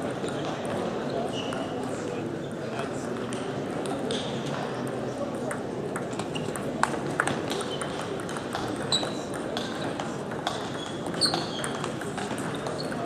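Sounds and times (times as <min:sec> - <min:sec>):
murmur of voices: 0:00.0 - 0:13.0
ping pong ball clicking: 0:04.8 - 0:13.0.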